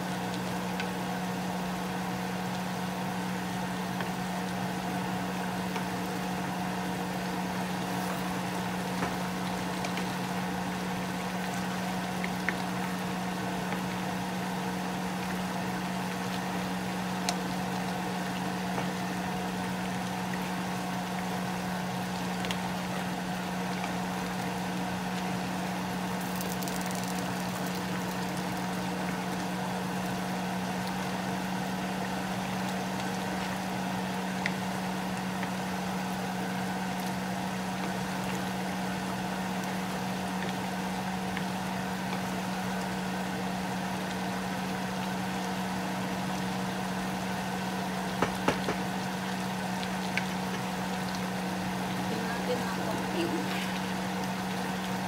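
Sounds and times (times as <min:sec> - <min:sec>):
low motor hum: 0:00.0 - 0:55.0
stew simmering in a pan: 0:00.0 - 0:55.0
wooden spoon knocking a pan: 0:48.2 - 0:48.8.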